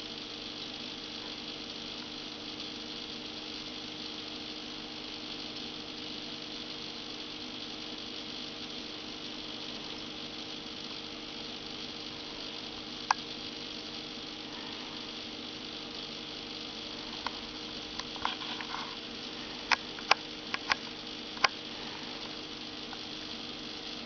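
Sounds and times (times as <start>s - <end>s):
aquarium equipment hum: 0.0s - 24.0s
steady hiss: 0.0s - 24.0s
sharp click: 19.7s - 21.6s.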